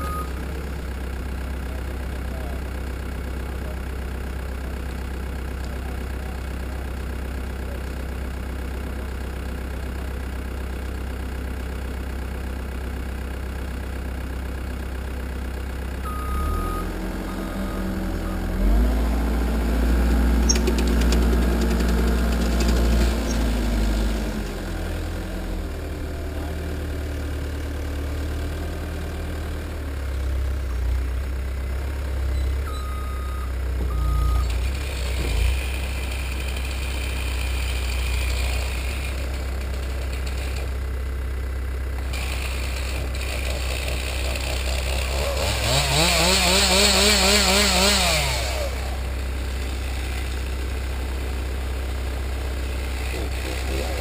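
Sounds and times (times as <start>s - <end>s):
short beeps: 0.0s - 0.4s, 16.1s - 18.5s, 32.3s - 34.6s
diesel engine running: 0.0s - 54.0s
chainsaw revving: 18.6s - 26.4s, 34.5s - 40.7s, 42.0s - 50.8s, 52.6s - 54.0s.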